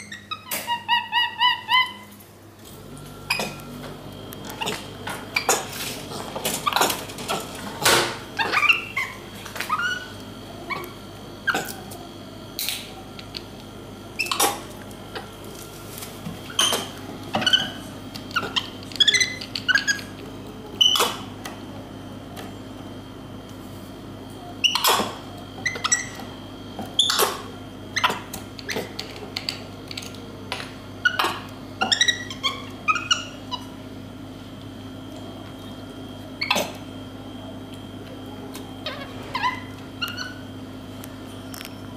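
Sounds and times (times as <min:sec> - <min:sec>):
monkey chirps and squeaks: 0:00.0 - 0:02.2, 0:08.4 - 0:10.1, 0:16.5 - 0:20.1, 0:20.8 - 0:21.2, 0:24.6 - 0:25.0, 0:25.6 - 0:26.2, 0:31.0 - 0:33.7, 0:38.8 - 0:40.4.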